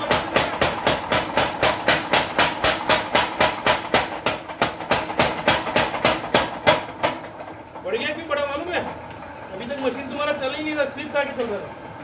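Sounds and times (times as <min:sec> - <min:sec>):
power hammer striking metal: 0:00.0 - 0:07.3.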